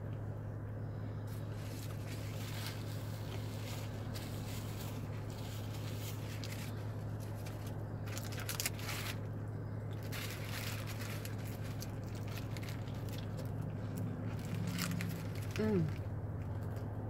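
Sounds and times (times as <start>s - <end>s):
steady low hum: 0.0s - 17.0s
paper wrapper crackling: 1.6s - 16.8s.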